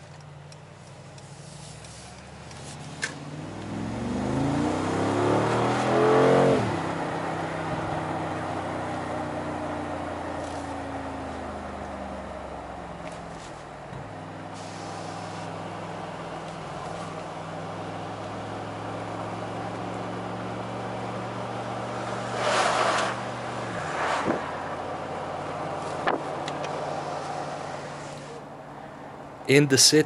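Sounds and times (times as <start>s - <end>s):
car engine accelerating: 0.0s - 30.0s
short loud hissing bursts: 14.6s - 15.5s.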